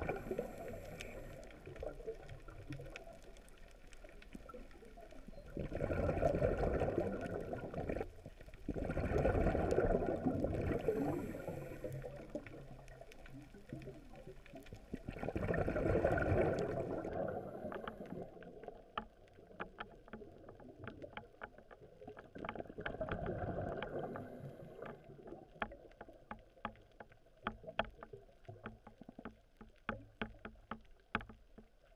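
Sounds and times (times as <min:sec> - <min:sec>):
sharp reef clicks: 0:00.0 - 0:05.3, 0:16.2 - 0:31.9
underwater bubbling: 0:00.0 - 0:31.9.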